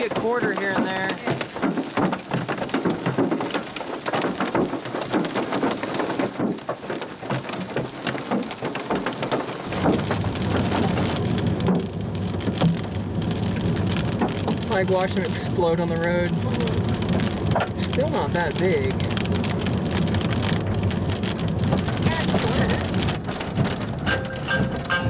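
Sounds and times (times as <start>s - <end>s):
hail drumming on vehicle roof: 0.0s - 25.0s
steady low rumble: 9.7s - 25.0s.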